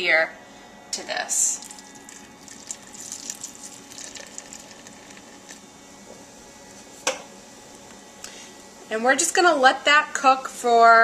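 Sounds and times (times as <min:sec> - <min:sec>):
beer fizzing and crackling: 0:01.5 - 0:05.7.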